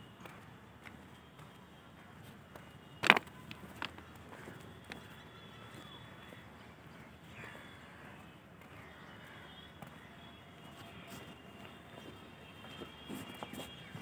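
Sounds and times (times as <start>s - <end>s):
footsteps on ballast: 2.2s - 5.8s
distant bird calls: 3.4s - 14.0s.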